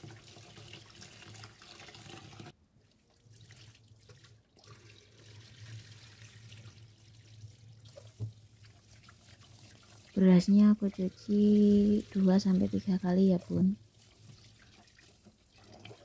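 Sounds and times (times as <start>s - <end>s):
running tap water: 0.0s - 2.6s, 3.3s - 16.0s
water poured into metal sink: 0.0s - 10.3s.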